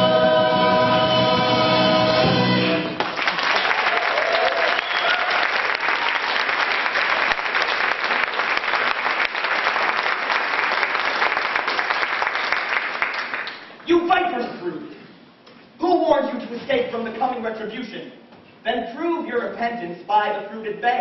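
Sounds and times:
audience clapping: 0:03.0 - 0:13.8
person whooping: 0:03.8 - 0:05.4.

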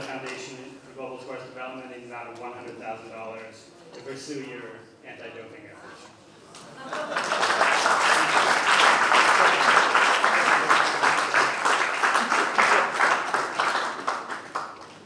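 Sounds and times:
audience applauding: 0:06.6 - 0:15.0.

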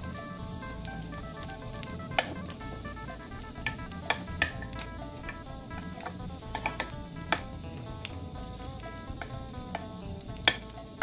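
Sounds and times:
background music: 0:00.0 - 0:11.0
rice sizzling in a pan: 0:00.0 - 0:11.0
metal spoon clicking against pan: 0:09.2 - 0:10.7.

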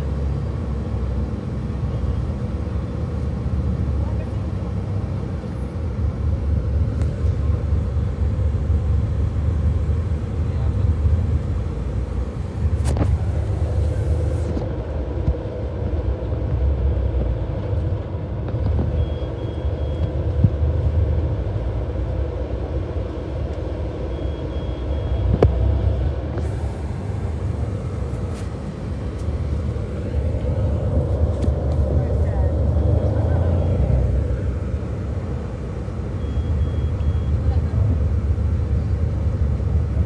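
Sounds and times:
bus engine and road rumble: 0:00.0 - 0:40.0
high electronic beeps: 0:36.2 - 0:37.4.

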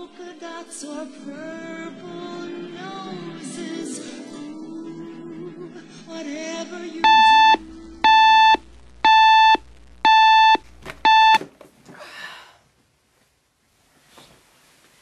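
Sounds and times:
alarm clock beeping: 0:07.0 - 0:11.4.

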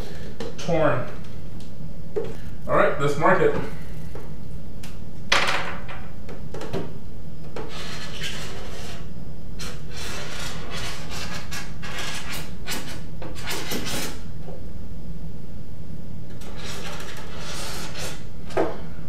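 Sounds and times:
steady low hum: 0:00.0 - 0:19.0
scratchy rubbing strokes: 0:07.7 - 0:14.2, 0:16.4 - 0:18.3.

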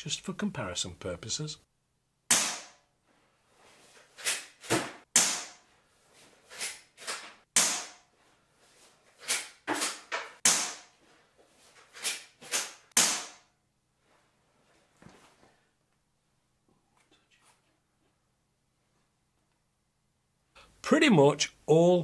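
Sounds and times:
air rifle shots: 0:02.3 - 0:02.8, 0:04.8 - 0:05.6, 0:07.6 - 0:08.0, 0:09.8 - 0:10.9, 0:12.5 - 0:13.4.

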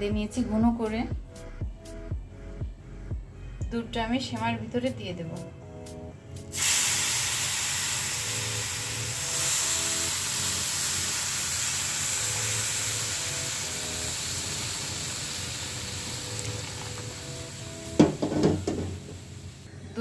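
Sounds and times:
milk sizzling in hot pan: 0:06.5 - 0:19.7.

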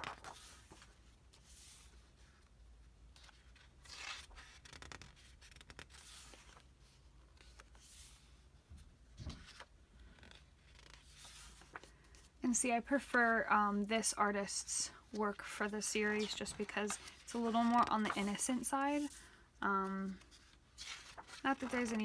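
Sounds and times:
paper pages being turned: 0:00.0 - 0:02.4, 0:03.1 - 0:08.4, 0:09.2 - 0:12.3, 0:15.3 - 0:19.2, 0:20.0 - 0:22.0.

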